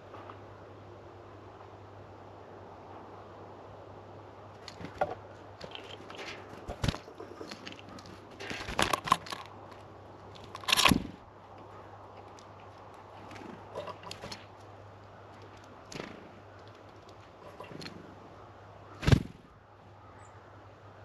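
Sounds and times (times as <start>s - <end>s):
birds pecking and cracking seeds: 4.5s - 19.2s
loud crunching bursts: 10.4s - 11.2s.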